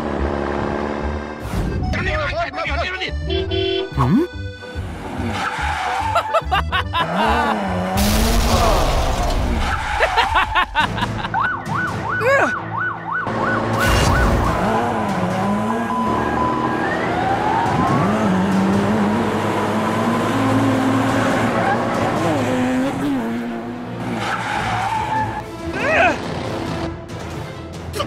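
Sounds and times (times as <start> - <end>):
siren yelp sound effect: 12.1 - 12.8.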